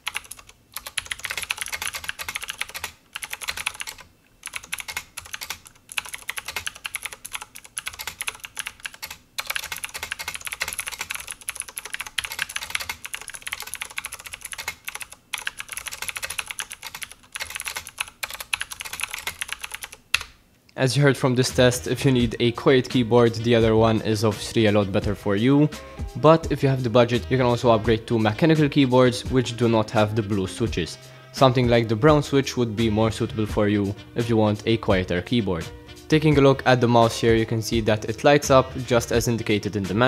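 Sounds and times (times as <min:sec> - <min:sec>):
mechanical keyboard typing: 0:00.0 - 0:20.3.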